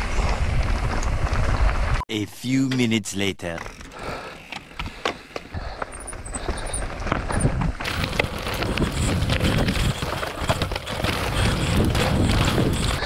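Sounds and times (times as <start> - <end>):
wind rumble: 0.0 - 2.0, 5.6 - 13.0
bike rattling over bumps: 3.6 - 13.0
tyres crunching over dirt and stones: 3.6 - 13.0.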